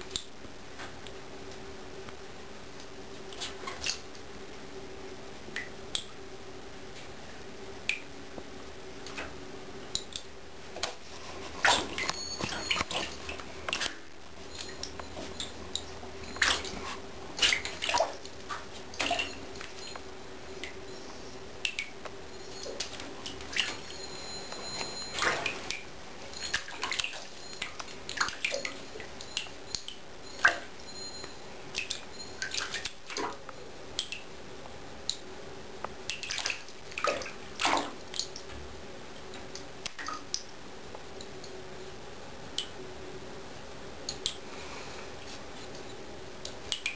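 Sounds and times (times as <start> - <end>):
cat paws splashing in water: 16.4 - 19.8, 25.1 - 30.6, 36.1 - 38.5.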